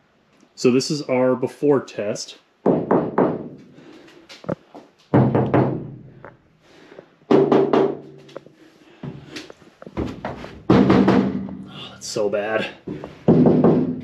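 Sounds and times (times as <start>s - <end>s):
hand knocking on steel panels: 7.3s - 8.4s, 10.0s - 11.7s, 12.9s - 14.0s.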